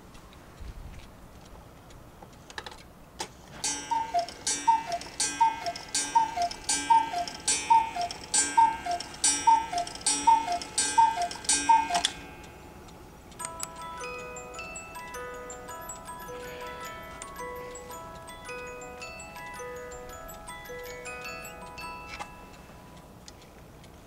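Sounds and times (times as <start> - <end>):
clock strike mechanism clicks: 3.6 - 22.6
cuckoo clock calls: 3.6 - 23.1.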